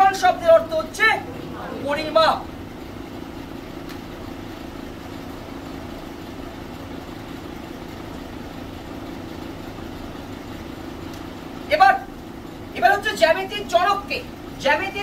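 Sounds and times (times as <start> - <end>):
low droning hum: 0.0 - 5.6.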